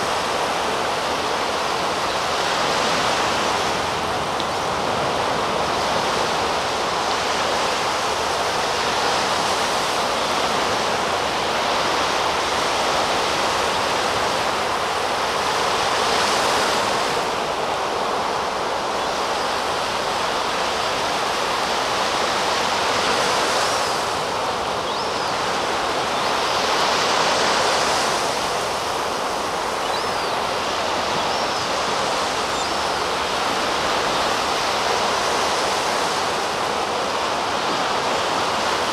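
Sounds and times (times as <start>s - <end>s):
young gull begging cries: 29.6s - 34.3s.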